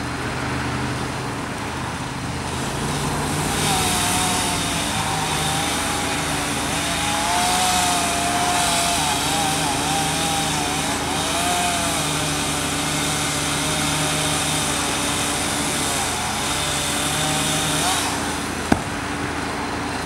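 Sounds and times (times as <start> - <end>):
engine drone with whine: 0.0 - 20.0.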